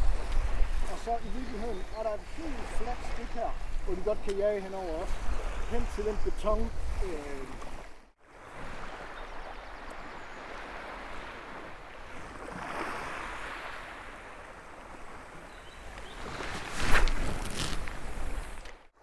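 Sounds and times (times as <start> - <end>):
small waves on stony shore: 6.8 - 19.0.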